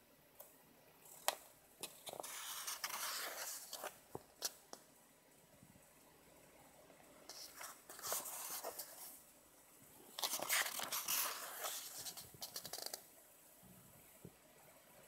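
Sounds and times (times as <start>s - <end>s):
book pages rustling: 1.2s - 4.6s, 7.3s - 9.2s, 10.2s - 13.0s.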